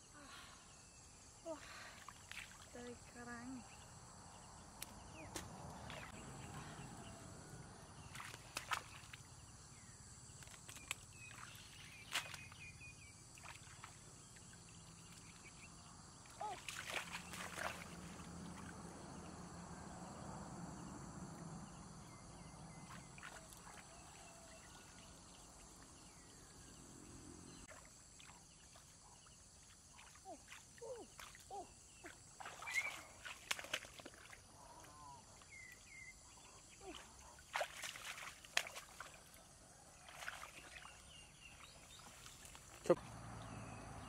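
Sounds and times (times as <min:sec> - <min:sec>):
shallow water sloshing: 0:16.4 - 0:18.8.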